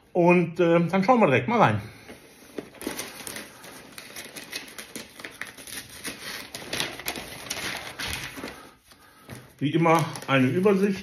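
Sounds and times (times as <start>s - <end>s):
cardboard and paper rustling: 2.0s - 11.0s.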